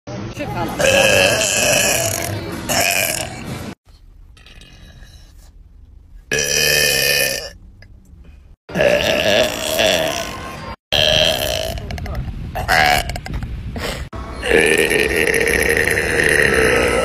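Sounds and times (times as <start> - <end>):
woman burping: 0.8 - 3.4, 8.7 - 12.0, 14.4 - 17.0.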